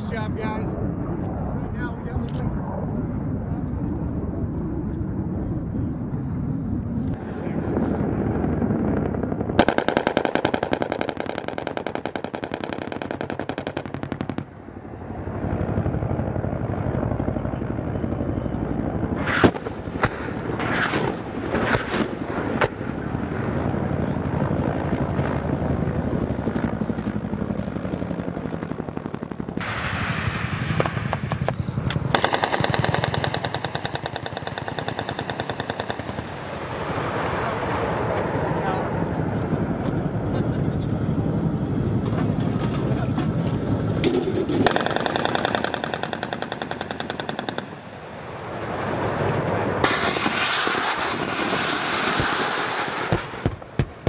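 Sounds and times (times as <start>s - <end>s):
steady rumbling noise: 0.0s - 54.0s
helicopter gun firing bursts: 7.8s - 14.6s, 25.6s - 36.6s, 43.6s - 48.1s, 49.9s - 54.0s
sharp cracks: 9.5s - 14.6s, 19.2s - 23.0s, 30.7s - 36.8s, 44.0s - 48.1s.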